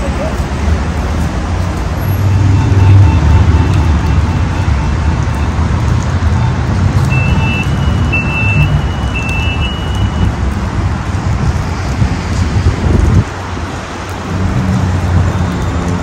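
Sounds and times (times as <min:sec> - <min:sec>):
tram and street rumble: 0:00.0 - 0:16.0
high electronic beeps: 0:06.4 - 0:10.3.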